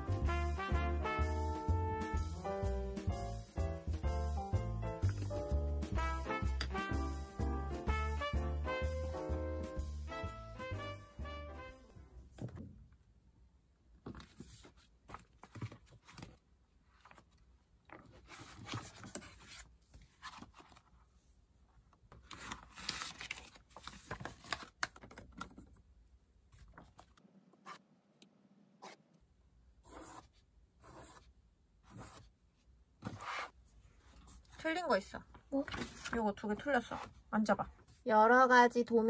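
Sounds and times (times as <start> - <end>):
paper pages rustling: 14.0 - 21.2, 22.1 - 25.7, 35.6 - 37.2.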